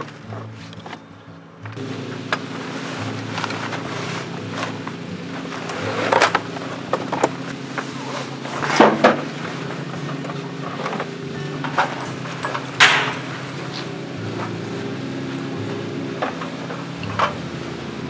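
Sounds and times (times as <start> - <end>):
soft background music: 0.0 - 18.0
plastic boxes knocking and scraping: 3.2 - 13.5.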